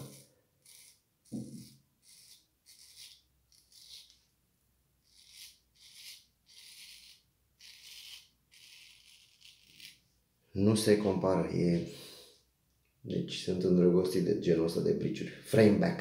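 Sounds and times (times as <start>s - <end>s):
straight razor scraping stubble: 0.0s - 4.2s, 5.1s - 10.0s.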